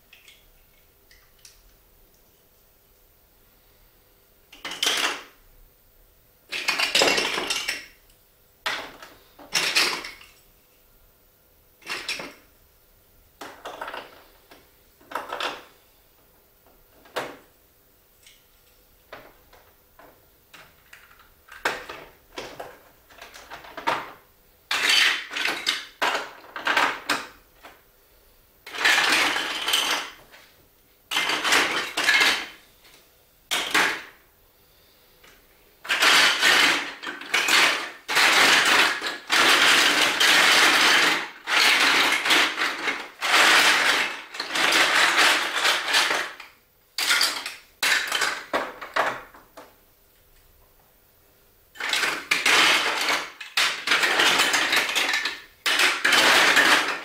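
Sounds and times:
plastic blocks clattering: 0:04.5 - 0:05.3, 0:06.5 - 0:08.0, 0:08.7 - 0:10.4, 0:11.8 - 0:12.4, 0:13.4 - 0:15.7, 0:20.6 - 0:27.8, 0:28.7 - 0:30.4, 0:31.1 - 0:32.6, 0:33.5 - 0:34.2, 0:35.8 - 0:49.7, 0:51.8 - 0:57.0.

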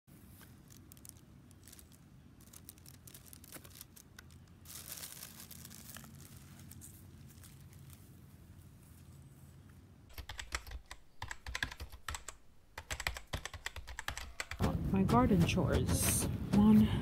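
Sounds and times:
faint rustling and crackling: 0:00.1 - 0:10.1.

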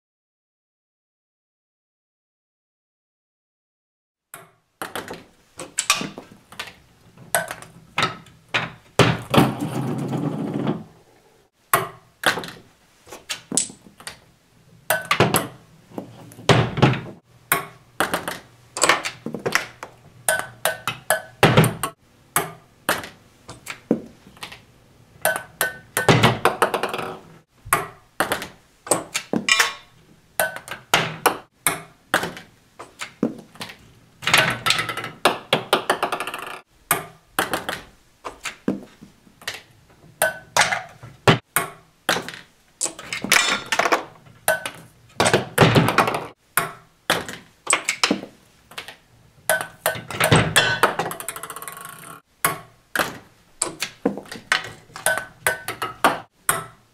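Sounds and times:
tape rolls and wood rattling: 0:04.9 - 0:11.0
ping-pong ball bouncing: 0:17.5 - 0:18.4, 0:20.3 - 0:23.1, 0:25.2 - 0:28.5, 0:30.4 - 0:32.4, 0:49.5 - 0:53.1, 0:55.1 - 0:56.8.

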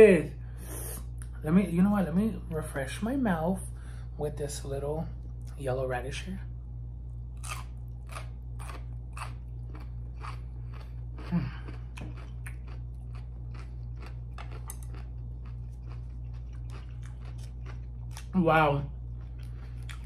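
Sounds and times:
crunchy chewing: 0:07.3 - 0:20.0.

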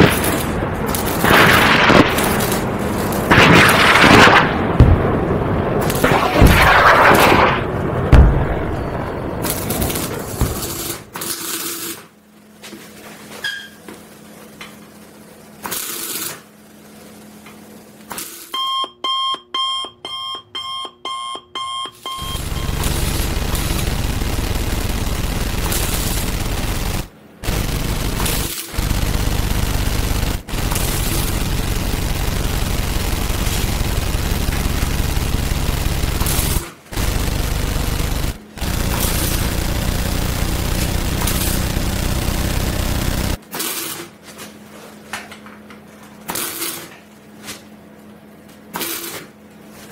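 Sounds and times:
arc welding crackling buzz: 0:00.0 - 0:04.6, 0:08.5 - 0:12.5, 0:13.7 - 0:18.5, 0:22.2 - 0:44.1
short two-tone beeps: 0:18.6 - 0:22.7.

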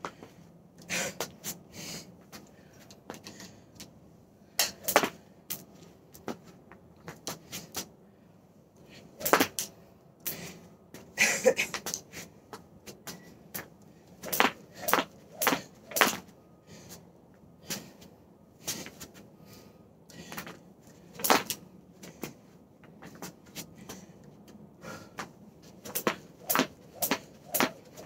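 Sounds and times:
rope slapping wooden deck: 0:04.6 - 0:05.6, 0:09.2 - 0:09.7, 0:14.2 - 0:16.2, 0:21.2 - 0:21.6, 0:25.7 - 0:28.0.

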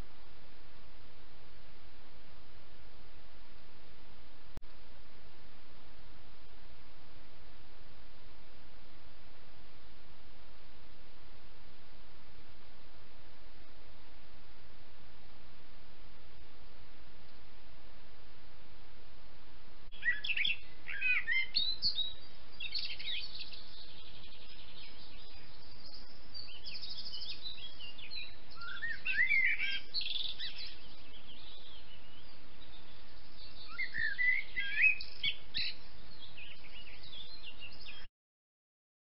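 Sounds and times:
songbirds chirping and whistling: 0:20.0 - 0:38.1.

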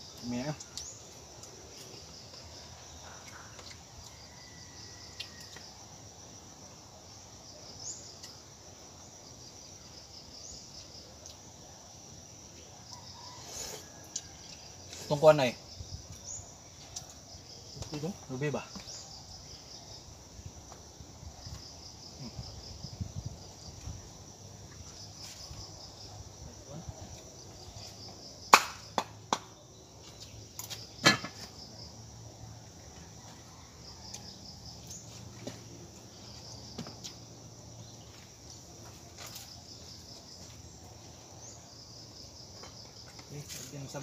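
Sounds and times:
insects trilling: 0:00.0 - 0:44.0.

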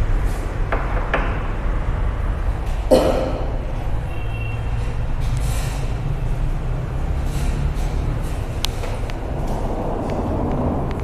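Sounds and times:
low rumble: 0:07.8 - 0:11.0.

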